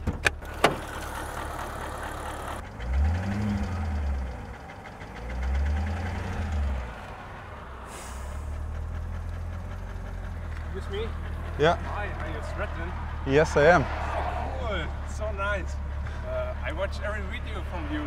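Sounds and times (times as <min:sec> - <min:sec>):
car engine idling with knock: 0:00.0 - 0:07.2, 0:08.2 - 0:13.2
engine revving: 0:00.4 - 0:18.0.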